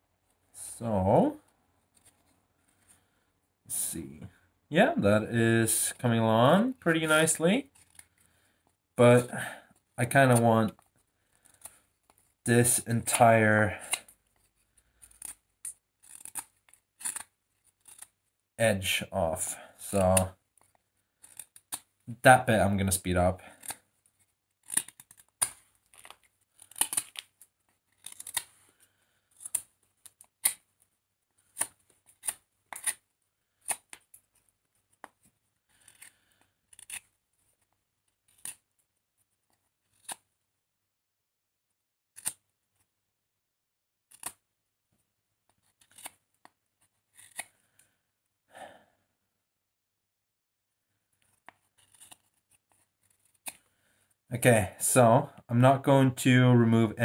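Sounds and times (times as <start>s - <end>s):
knife shaving wood: 9.5s - 18.4s, 19.0s - 40.3s, 44.0s - 44.4s, 45.4s - 48.0s, 51.1s - 54.2s.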